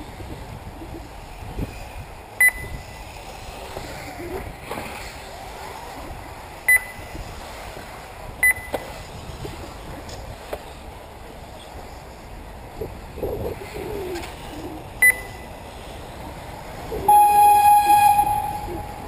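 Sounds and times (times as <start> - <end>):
long steady electronic tone: 2.4 - 3.0, 6.7 - 7.1, 17.0 - 19.0
short high beep: 17.1 - 19.0.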